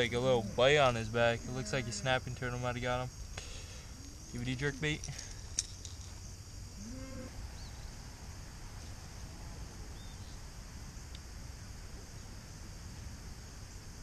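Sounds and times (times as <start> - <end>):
crickets chirring: 0.0 - 14.0
faint bird chirps: 9.9 - 10.4.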